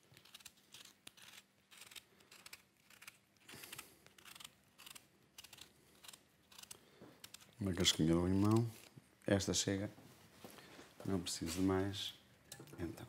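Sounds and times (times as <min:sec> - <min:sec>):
knife scraping lemon rind: 0:00.0 - 0:07.5.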